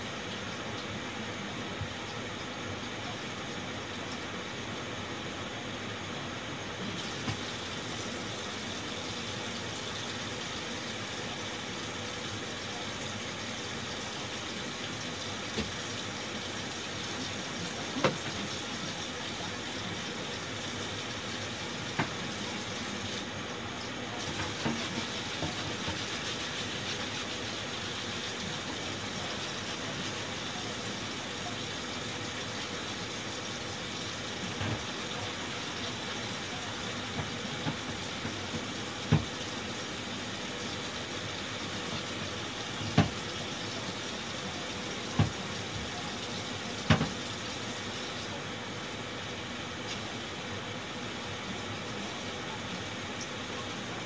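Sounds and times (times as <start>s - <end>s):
tap running into sink: 21.9s - 22.2s, 37.1s - 39.4s, 42.8s - 43.3s, 45.1s - 45.9s, 46.8s - 47.2s.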